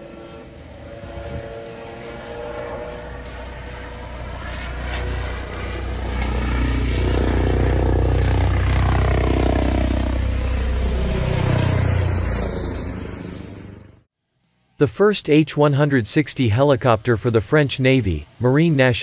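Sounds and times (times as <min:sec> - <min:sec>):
helicopter flying overhead: 0:00.0 - 0:14.1.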